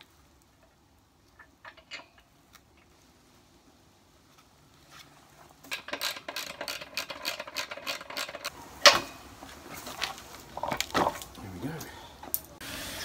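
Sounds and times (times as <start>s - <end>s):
socket spanner ratcheting: 1.4s - 2.3s, 5.7s - 9.0s.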